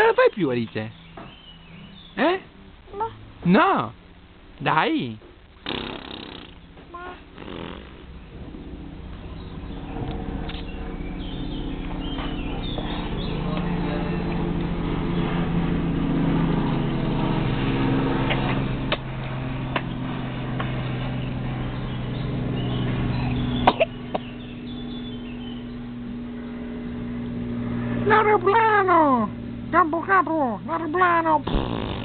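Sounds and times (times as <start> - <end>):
airplane engine drone: 5.6 - 32.0.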